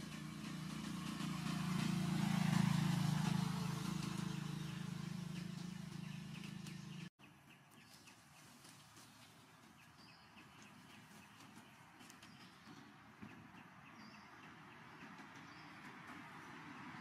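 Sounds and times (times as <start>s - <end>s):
vehicle engine passing by: 0.0s - 7.1s.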